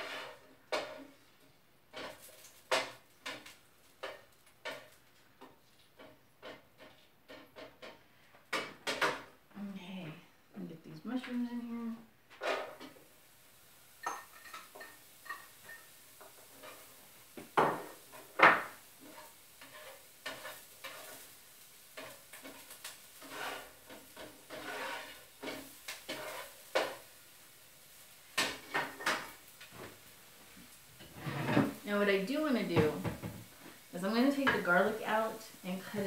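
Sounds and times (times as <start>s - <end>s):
dishes and utensils clinking: 14.0s - 21.2s.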